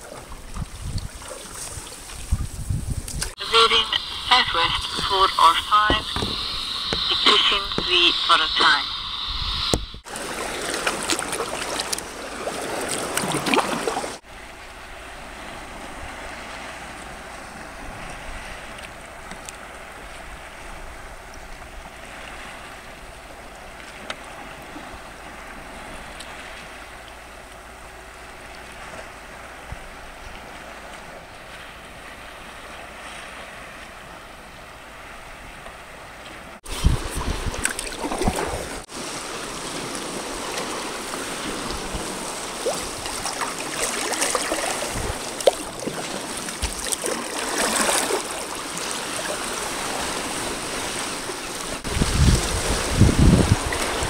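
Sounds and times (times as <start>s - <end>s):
wind on microphone: 0.0s - 26.9s, 36.6s - 45.9s, 49.5s - 54.0s
paddle splashing water: 0.0s - 54.0s
small waves lapping: 0.0s - 54.0s.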